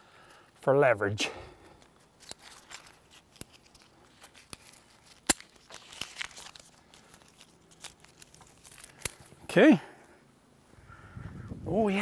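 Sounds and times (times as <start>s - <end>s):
rope rustling: 1.6s - 9.5s
metal carabiner clicks: 1.8s - 6.6s.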